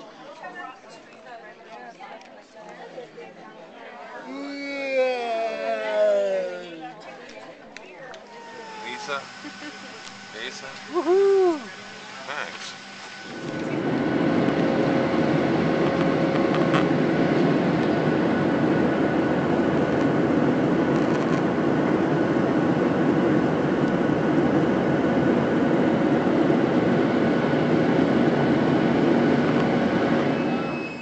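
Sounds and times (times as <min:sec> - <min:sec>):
jet airliner cabin noise: 0:08.2 - 0:31.0.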